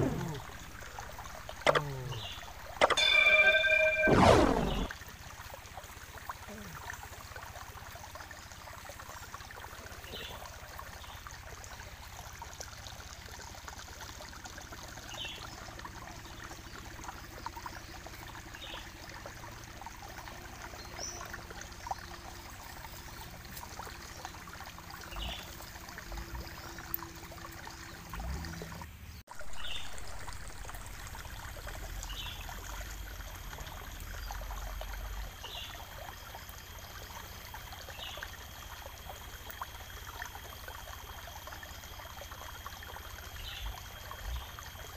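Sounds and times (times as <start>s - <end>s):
faint high chirps: 1.7s - 4.9s.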